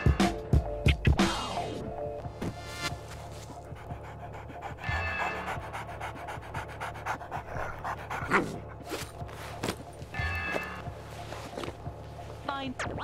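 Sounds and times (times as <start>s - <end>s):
background music: 0.0s - 13.0s
dog panting: 3.0s - 9.8s.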